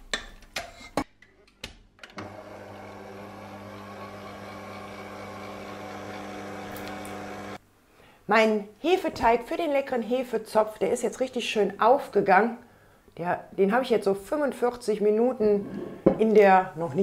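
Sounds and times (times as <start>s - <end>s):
stand mixer motor humming: 2.2s - 7.6s.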